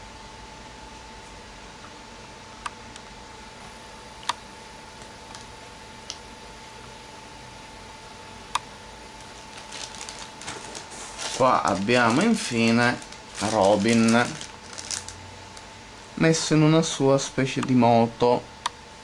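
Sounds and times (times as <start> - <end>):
faint steady whine: 0.0 - 19.0
plastic bag crinkling: 9.2 - 15.7.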